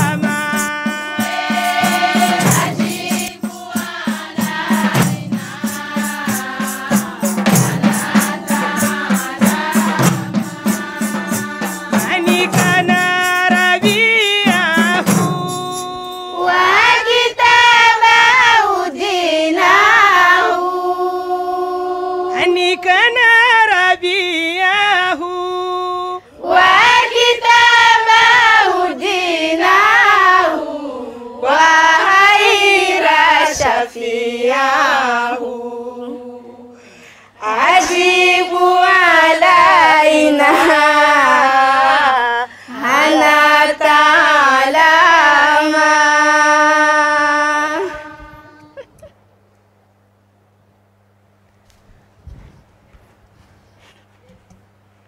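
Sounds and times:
frame drums and tambourines: 0:00.0 - 0:19.0, 0:37.4 - 0:41.6
women's choir singing: 0:00.0 - 0:48.9.

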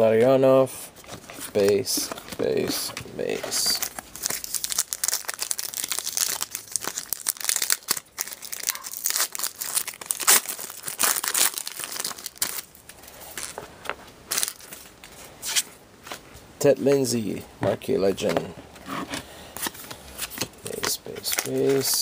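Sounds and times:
wrapper crinkling and tearing: 0:03.4 - 0:13.6, 0:14.3 - 0:14.9.

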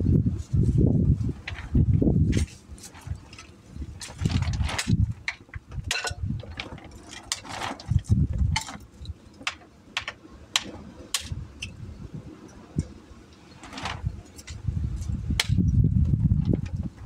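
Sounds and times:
knocks and scrapes of tools: 0:01.4 - 0:11.8.

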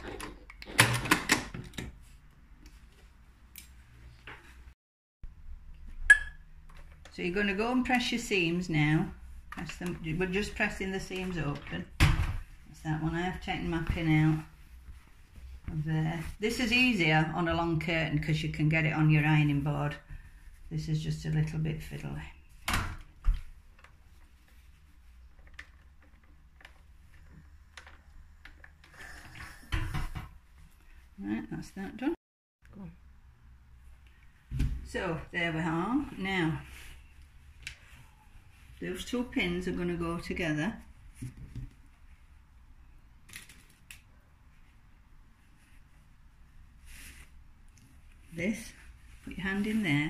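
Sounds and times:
curtain fabric rustling: 0:08.8 - 0:17.4, 0:23.4 - 0:27.1, 0:44.5 - 0:50.0
fabric handling: 0:09.2 - 0:16.9.

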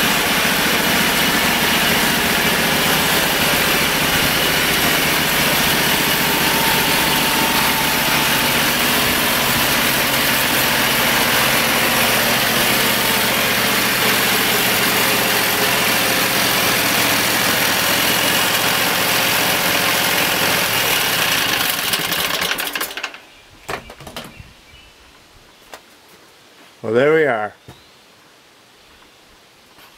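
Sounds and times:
band blade sawing wood: 0:00.0 - 0:23.0
sawmill engine running: 0:00.0 - 0:23.2.

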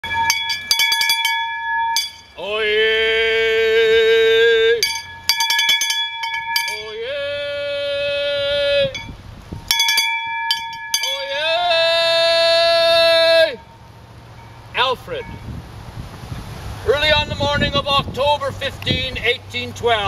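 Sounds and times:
handbell clanging: 0:00.0 - 0:02.4, 0:04.8 - 0:07.0, 0:08.9 - 0:11.4, 0:14.4 - 0:15.5.

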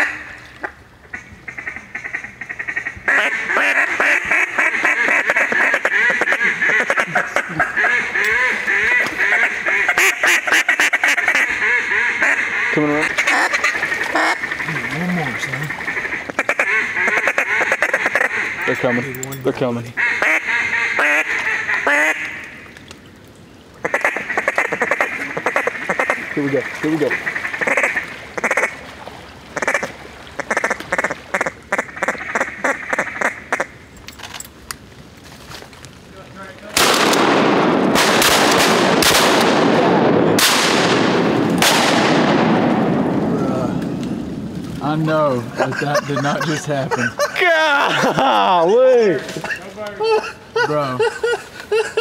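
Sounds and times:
duck call quacks: 0:00.0 - 0:15.0, 0:15.7 - 0:19.2, 0:20.0 - 0:22.5, 0:23.8 - 0:26.3, 0:27.1 - 0:28.8, 0:29.6 - 0:33.7.

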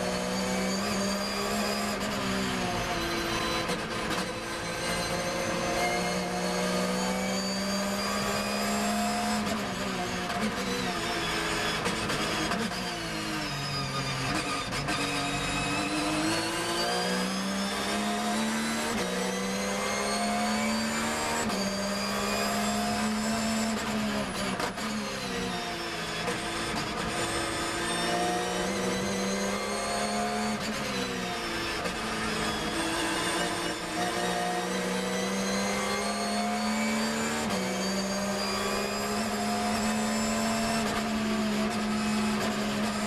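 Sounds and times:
race car engine revving: 0:26.1 - 0:43.0.

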